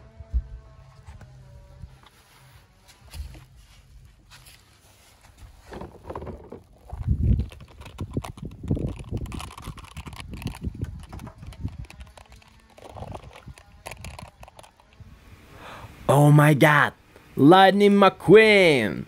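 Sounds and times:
small knocks: 5.6s - 8.0s.

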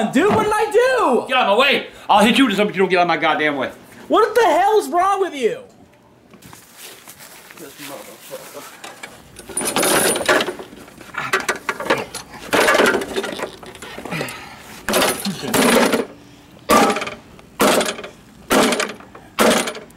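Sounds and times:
lawnmower deck clanging and rattling: 8.8s - 14.1s, 14.9s - 19.9s
hand tool striking metal: 16.7s - 19.8s.

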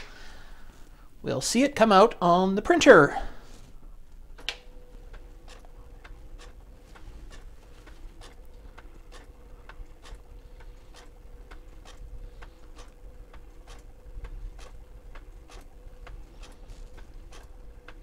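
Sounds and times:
faint steady hum: 0.0s - 18.0s
thermal printer clicking: 4.0s - 18.0s.

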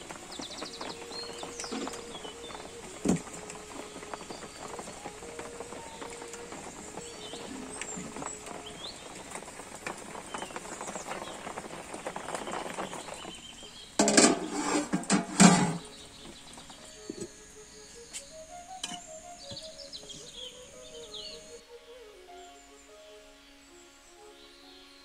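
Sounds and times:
wood fire crackling: 0.0s - 22.0s
birds chirping: 0.0s - 25.0s
metal lid clattering and clanging: 14.0s - 15.9s.

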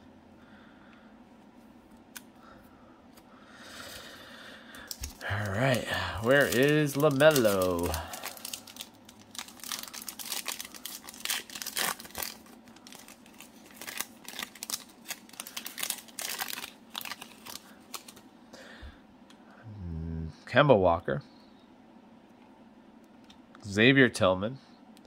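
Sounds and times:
foil wrapper crinkling and tearing: 4.8s - 18.2s.

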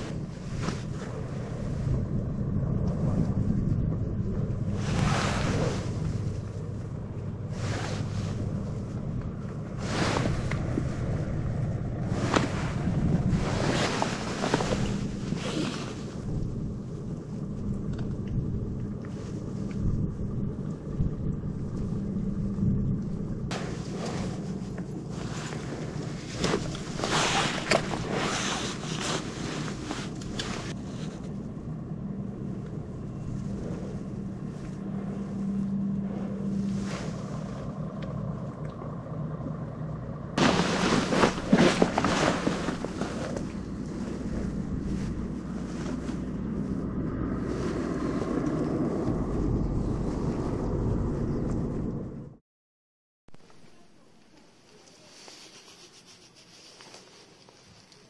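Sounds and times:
low rumble: 0.0s - 52.4s
wind buffeting microphone: 0.0s - 52.4s
gloves and jacket rustling: 4.6s - 17.0s, 23.5s - 31.4s, 33.2s - 37.8s, 40.4s - 48.4s, 54.6s - 58.0s.

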